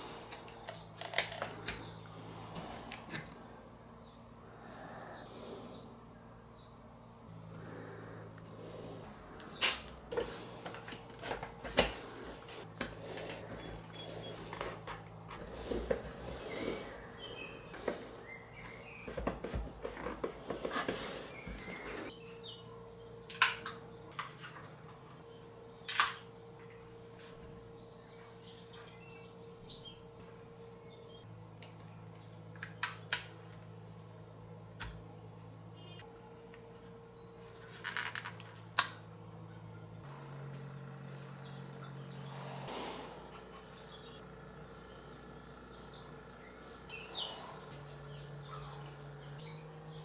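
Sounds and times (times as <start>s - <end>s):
faint steady hum: 0.0s - 50.0s
plastic parts clicking and rustling: 0.3s - 1.9s, 9.6s - 16.1s, 37.6s - 39.0s.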